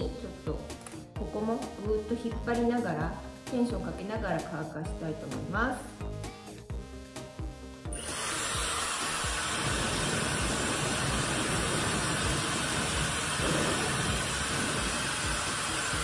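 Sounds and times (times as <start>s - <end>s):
hair dryer blowing air: 7.9s - 16.0s.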